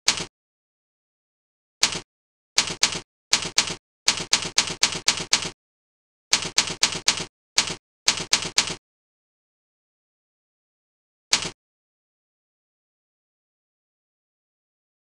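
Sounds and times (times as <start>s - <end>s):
keyboard keystroke clicks: 0.1s - 0.3s, 1.8s - 2.0s, 6.3s - 8.8s, 11.3s - 11.6s.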